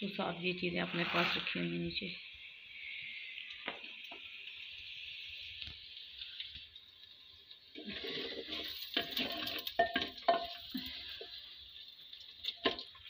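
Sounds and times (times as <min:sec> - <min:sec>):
oil frying hiss: 0:00.0 - 0:13.0
spoon stirring and scraping pot: 0:07.8 - 0:11.4.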